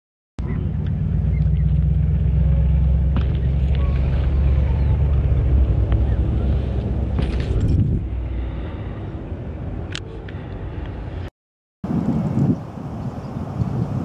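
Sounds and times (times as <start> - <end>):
low rumble: 0.4 - 11.3.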